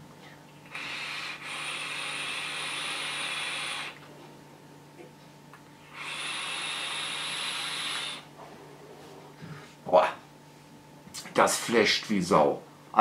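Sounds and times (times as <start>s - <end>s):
e-cigarette hiss: 0.7s - 4.0s, 5.9s - 8.2s.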